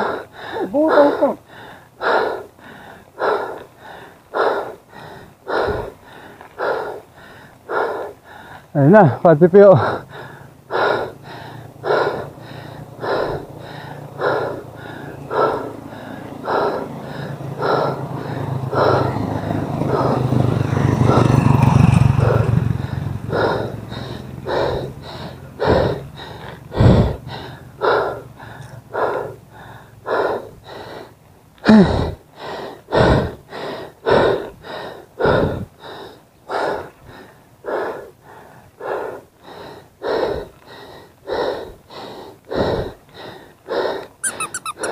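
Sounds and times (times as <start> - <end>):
cyclist breathing hard: 0.0 - 44.9
motor vehicle passing: 3.2 - 30.1, 44.2 - 44.9.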